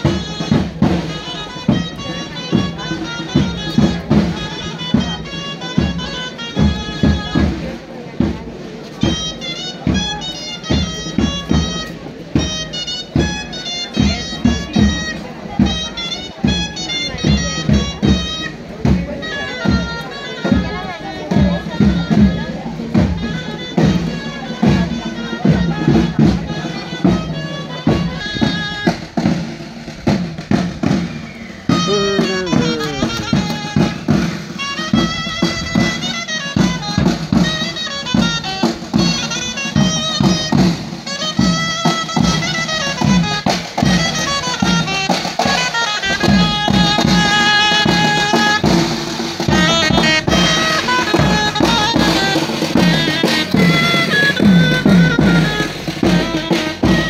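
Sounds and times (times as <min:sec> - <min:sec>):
drum beat: 0:00.0 - 0:57.0
wind instrument melody: 0:00.0 - 0:57.0.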